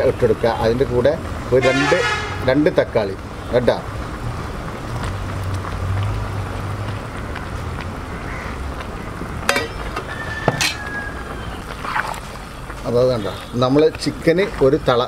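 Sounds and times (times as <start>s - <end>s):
metal utensils clinking: 9.5s - 10.8s.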